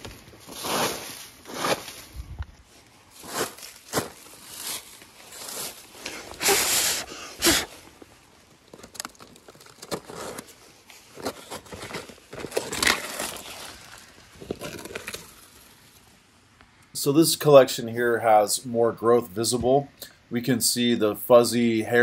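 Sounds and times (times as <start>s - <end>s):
hand brushing dry leaves: 0.0s - 8.2s, 10.0s - 16.1s
scratchy paper rustles: 8.7s - 16.0s.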